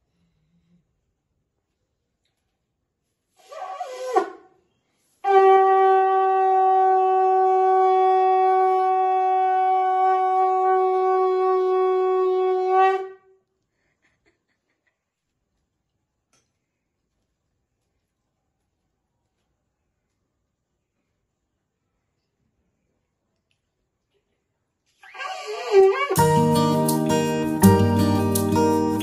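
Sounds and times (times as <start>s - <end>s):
conch shell blowing: 3.4s - 4.5s, 5.2s - 13.3s, 25.0s - 28.0s.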